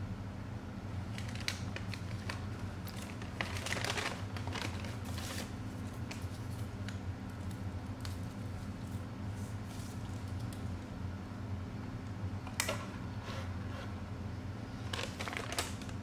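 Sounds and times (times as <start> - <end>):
steady low hum: 0.0 - 16.0
paper bag crinkling: 1.1 - 6.8, 14.8 - 16.0.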